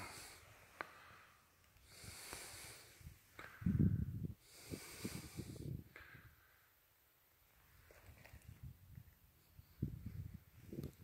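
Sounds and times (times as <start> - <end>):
heavy breathing: 0.0 - 6.8
wind buffeting microphone: 3.0 - 6.4, 8.1 - 11.0.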